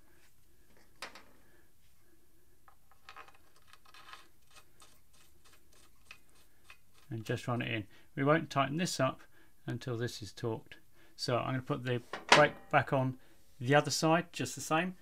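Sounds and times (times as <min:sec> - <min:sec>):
faint clicks and scratching: 0:02.6 - 0:07.4.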